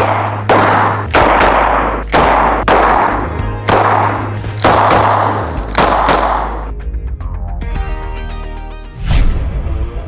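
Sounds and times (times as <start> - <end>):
revolver gunshots: 0.0 - 6.7.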